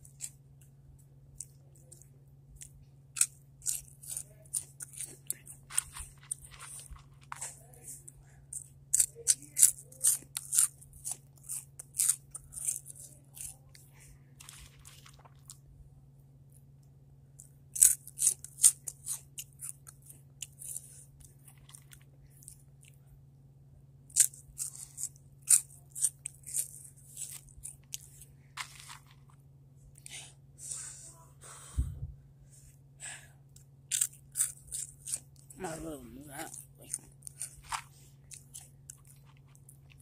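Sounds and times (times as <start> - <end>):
steady low hum: 0.0 - 40.0
chips crunching while chewed: 1.4 - 7.6, 8.6 - 13.8, 14.4 - 15.6, 17.4 - 22.9, 24.1 - 29.4, 33.9 - 35.8, 36.4 - 40.0.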